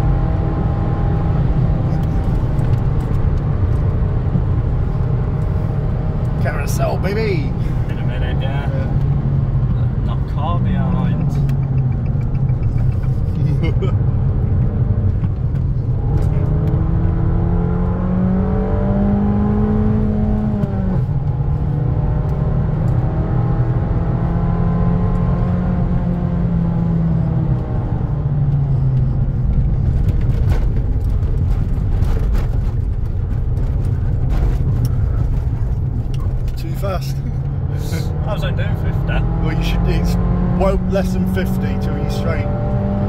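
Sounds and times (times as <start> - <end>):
car engine revving: 0.0 - 43.0
road and tyre rumble: 0.0 - 43.0.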